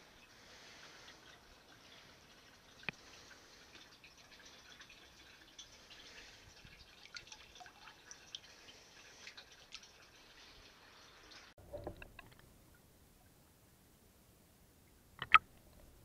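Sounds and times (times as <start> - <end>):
small drips and plops on water: 0.0 - 12.5, 15.2 - 15.5.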